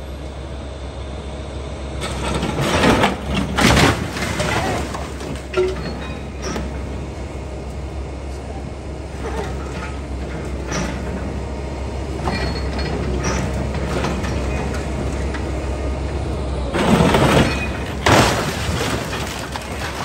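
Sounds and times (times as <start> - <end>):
truck crashing onto scrap pile: 2.0 - 7.0, 12.2 - 15.5, 16.7 - 20.0.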